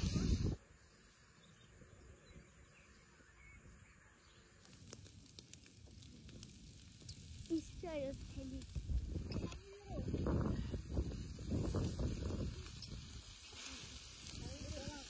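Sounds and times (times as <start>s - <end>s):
charcoal fire crackling: 0.0s - 0.6s, 4.5s - 15.0s
faint outdoor ambience: 0.0s - 15.0s.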